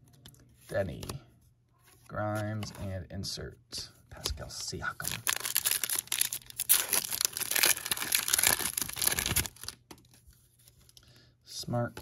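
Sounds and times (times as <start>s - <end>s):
plastic wrapper tearing and crinkling: 5.1s - 10.1s.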